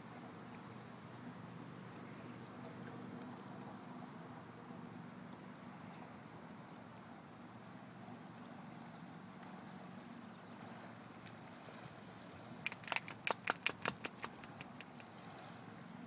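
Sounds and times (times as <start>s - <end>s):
sharp clicks: 12.6s - 15.1s.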